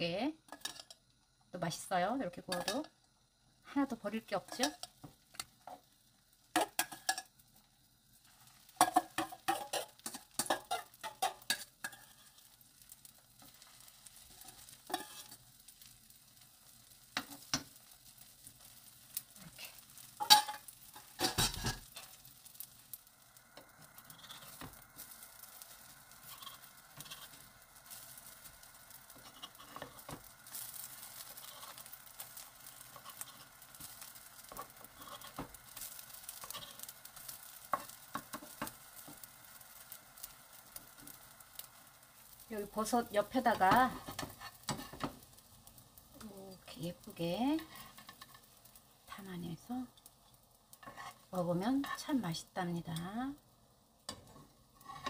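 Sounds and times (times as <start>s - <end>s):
food sizzling in a pan: 0.0s - 55.0s
spoon scraping a bowl: 24.1s - 24.7s, 26.2s - 27.4s.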